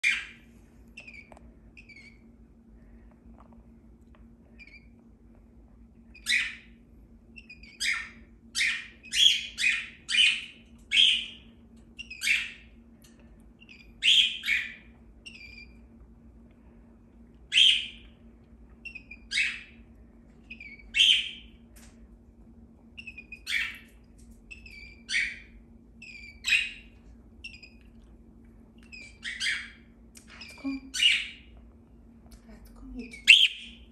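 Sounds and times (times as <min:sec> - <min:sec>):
cockatiel chirping: 0:00.0 - 0:00.4, 0:01.0 - 0:02.2, 0:06.1 - 0:06.7, 0:07.4 - 0:12.6, 0:13.6 - 0:15.8, 0:17.5 - 0:18.0, 0:18.8 - 0:19.8, 0:20.5 - 0:21.5, 0:23.0 - 0:23.9, 0:24.5 - 0:27.8, 0:28.8 - 0:31.5, 0:33.2 - 0:33.8
faint steady hum: 0:00.0 - 0:33.9.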